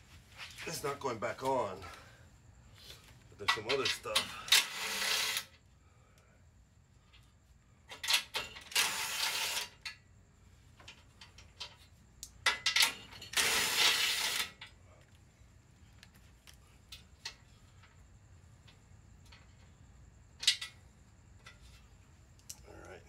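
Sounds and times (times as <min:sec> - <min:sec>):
impact gun loosening bolts: 0:03.5 - 0:05.5.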